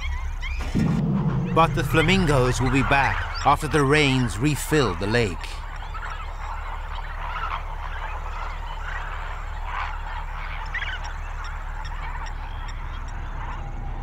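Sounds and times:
flamingos honking: 0:00.0 - 0:14.0
low steady rumble: 0:00.0 - 0:14.0.

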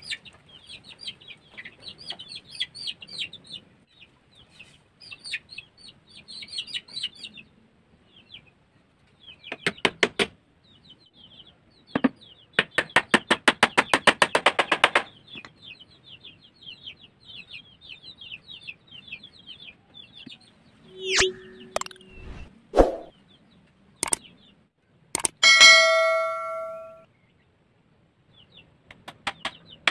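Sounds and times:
chickens chirping: 0:00.0 - 0:09.6, 0:10.5 - 0:12.6, 0:15.0 - 0:24.6
short tone: 0:20.9 - 0:22.5, 0:25.4 - 0:27.0
swoosh sound effect: 0:20.9 - 0:23.1.

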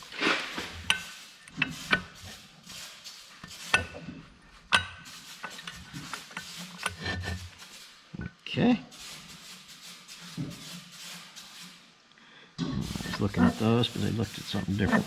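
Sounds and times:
metal parts clinking and scraping: 0:12.8 - 0:13.6.

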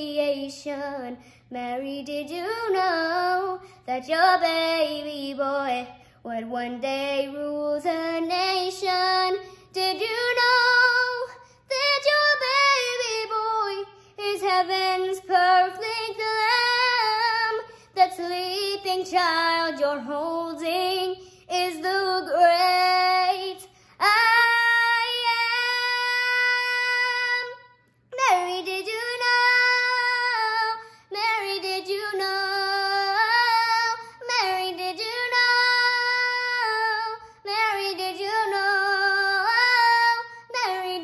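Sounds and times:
girl singing: 0:00.0 - 0:41.0.

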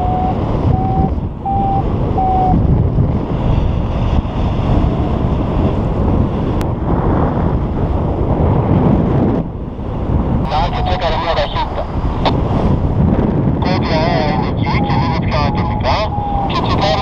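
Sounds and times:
variometer short beeps: 0:00.0 - 0:02.6
wind rushing over microphone: 0:00.0 - 0:17.0.

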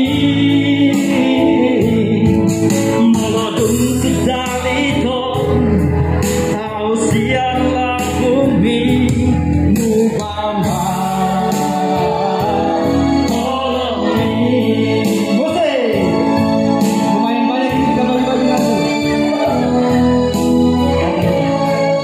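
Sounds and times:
man singing with vibrato: 0:00.0 - 0:22.0
music accompaniment: 0:00.0 - 0:22.0.

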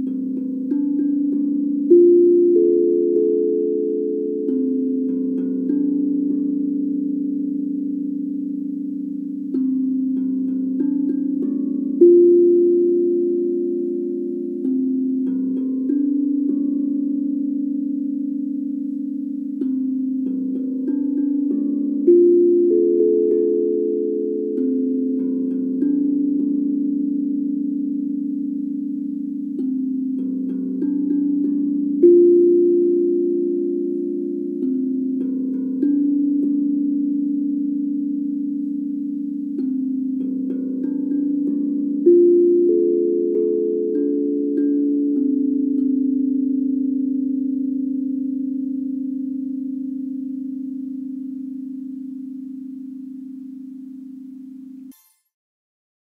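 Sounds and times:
steel tongue drum melody: 0:00.0 - 0:55.2.

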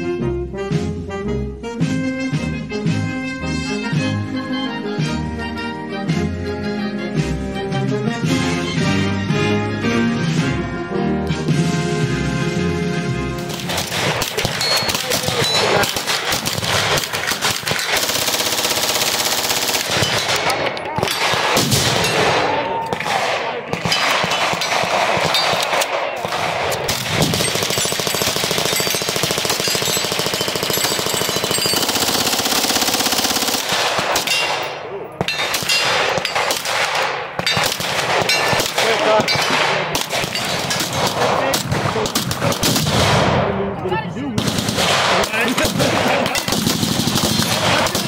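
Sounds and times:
submachine gun bursts: 0:13.4 - 0:21.8, 0:26.8 - 0:34.3, 0:44.4 - 0:48.0
continuous gunfire: 0:13.4 - 0:43.6, 0:44.4 - 0:48.0.

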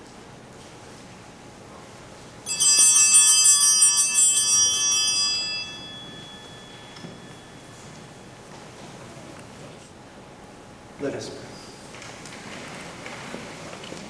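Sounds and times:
altar bells ringing: 0:02.4 - 0:08.4.

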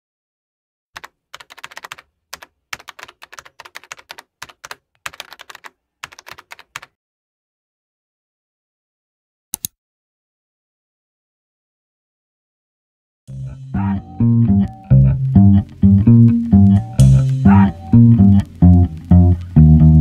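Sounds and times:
keyboard typing clicks: 0:01.0 - 0:06.9.

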